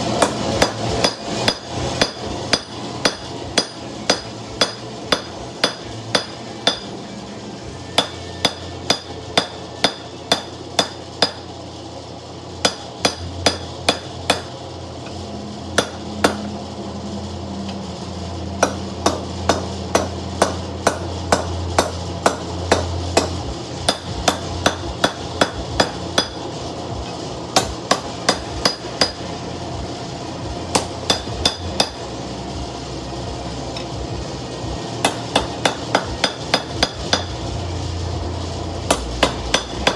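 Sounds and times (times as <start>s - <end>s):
hammer striking steel on anvil: 0.1s - 7.0s, 7.9s - 11.5s, 12.6s - 16.6s, 18.6s - 26.5s, 27.1s - 29.3s, 30.7s - 32.1s, 35.0s - 37.6s, 38.8s - 39.9s.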